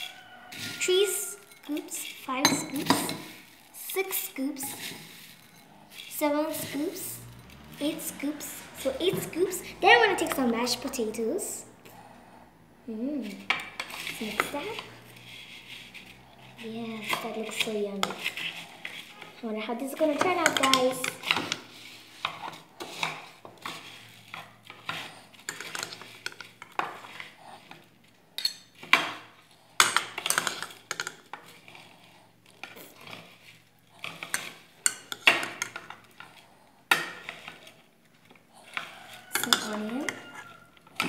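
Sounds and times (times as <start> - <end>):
spoon scraping glass bowl: 0.0 - 3.5, 4.1 - 8.0, 13.3 - 19.4, 38.6 - 41.0
dry rice rustling: 4.7 - 7.2.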